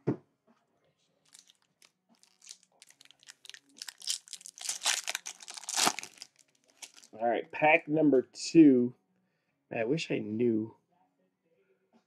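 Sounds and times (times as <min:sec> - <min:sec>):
wrapper crinkling and tearing: 0:01.3 - 0:07.2.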